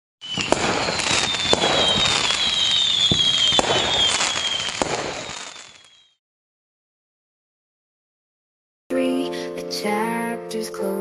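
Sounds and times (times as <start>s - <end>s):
fireworks bangs: 0.2s - 6.1s
fireworks crackling: 0.2s - 6.2s
fireworks whistling down: 0.2s - 6.2s.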